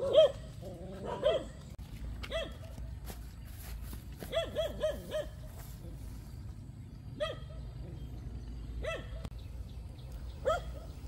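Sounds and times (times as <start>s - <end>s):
dog barking: 0.0s - 1.6s, 2.3s - 2.7s, 4.2s - 5.5s, 7.2s - 7.6s, 8.8s - 9.3s, 10.4s - 11.0s.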